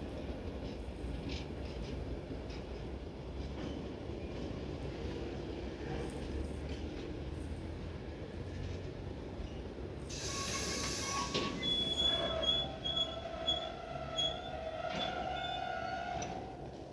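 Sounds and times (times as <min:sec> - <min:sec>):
train wheels rumbling on rails: 0:00.0 - 0:16.9
burst of hiss: 0:10.1 - 0:11.6
wheels squealing: 0:10.1 - 0:16.6.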